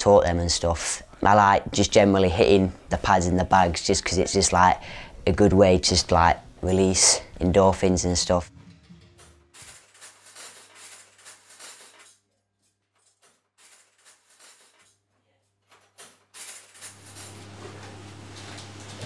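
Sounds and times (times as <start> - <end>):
metal cutlery clinking: 8.8 - 15.0, 15.7 - 19.0.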